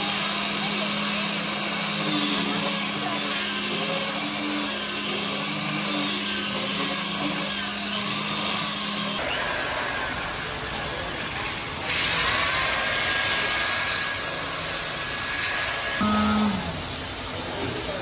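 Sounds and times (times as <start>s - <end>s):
disc sander on wood: 0.0s - 9.2s.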